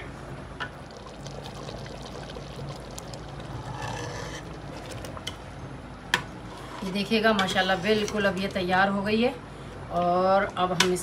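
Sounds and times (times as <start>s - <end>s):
ladle stirring thick sauce: 0.7s - 5.5s.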